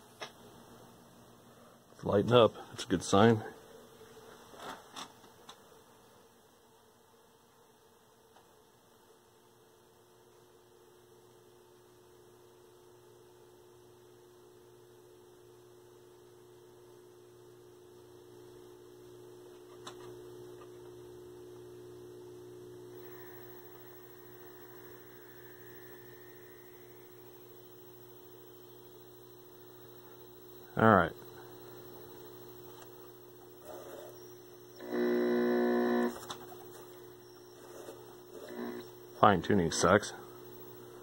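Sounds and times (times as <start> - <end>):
television mains hum: 8.3 - 41.0.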